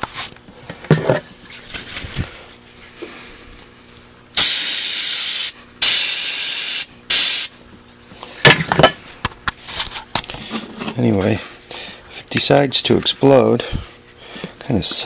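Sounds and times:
aerosol spray hissing: 0:04.4 - 0:07.5.

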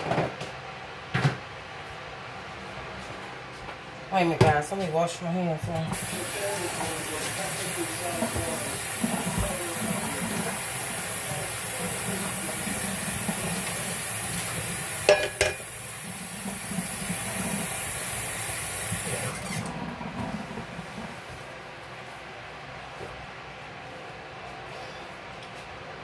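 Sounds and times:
tap water running: 0:05.8 - 0:21.5.

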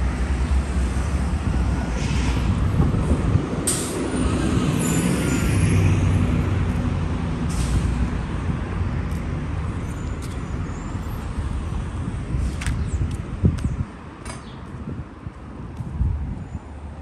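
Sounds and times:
bus engine droning: 0:00.0 - 0:12.6
street traffic: 0:00.0 - 0:17.0.

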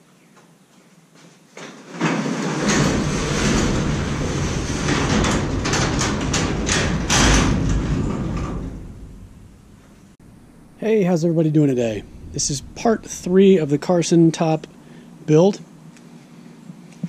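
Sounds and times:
sharp clacks of garage door: 0:01.6 - 0:10.2
garage door rolling open: 0:01.7 - 0:10.8, 0:11.7 - 0:15.0.

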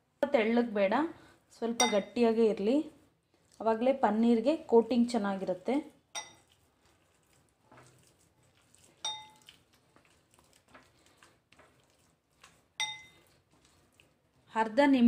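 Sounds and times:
wet batter mixing: 0:00.8 - 0:15.0
bangle pinging glass bowl: 0:01.8 - 0:02.2, 0:06.2 - 0:06.4, 0:09.0 - 0:09.4, 0:12.8 - 0:13.1.

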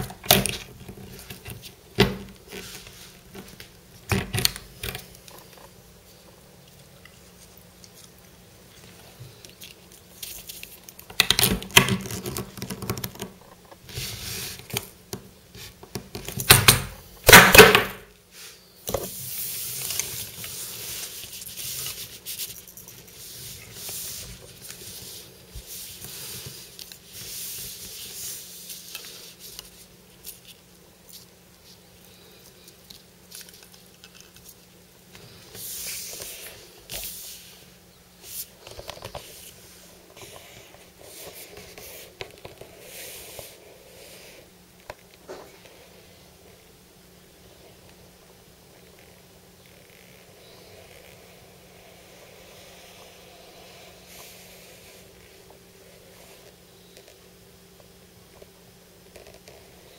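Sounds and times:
plastic toys rubbing and handling: 0:00.0 - 0:16.5, 0:18.3 - 0:46.1.

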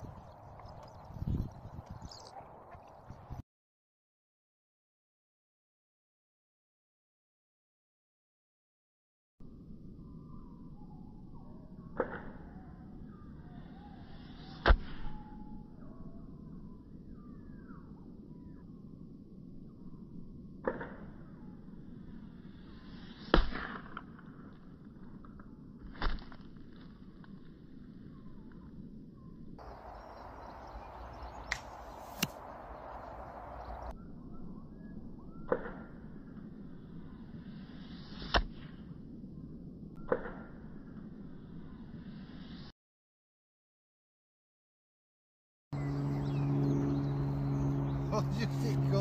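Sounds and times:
crossbow firing: 0:23.2 - 0:24.3, 0:31.4 - 0:33.0
faint chirps: 0:28.0 - 0:35.5
crossbow shot snaps: 0:31.4 - 0:32.6.

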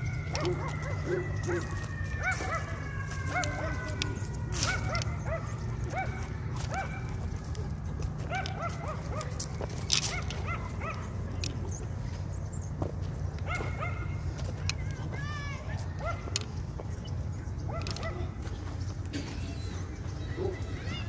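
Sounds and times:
dog yipping and whining: 0:00.3 - 0:03.9.

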